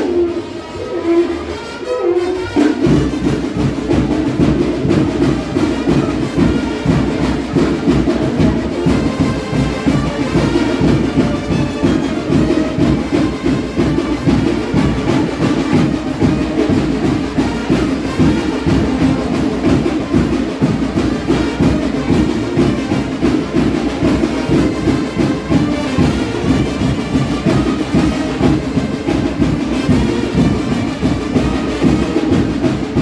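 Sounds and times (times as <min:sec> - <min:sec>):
brass instruments playing: 0:00.0 - 0:33.0
steady drum beat: 0:02.6 - 0:33.0.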